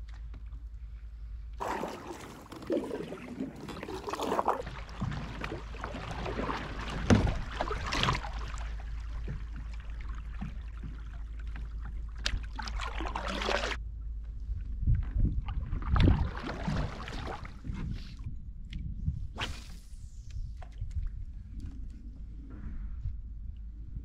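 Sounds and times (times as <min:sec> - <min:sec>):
kayak paddle splashing in water: 0:01.6 - 0:13.8, 0:15.5 - 0:17.7.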